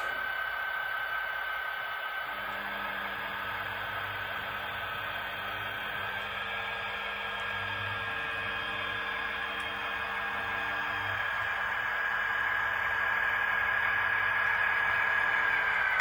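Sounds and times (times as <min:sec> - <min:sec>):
model locomotive motors humming: 0:00.0 - 0:16.0.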